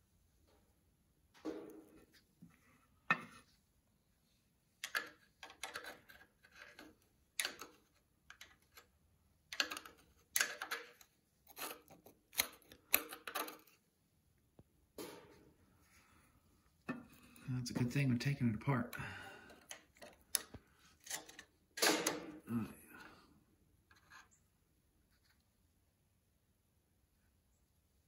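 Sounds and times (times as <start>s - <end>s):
screwdriver scraping metal: 10.4s - 13.7s.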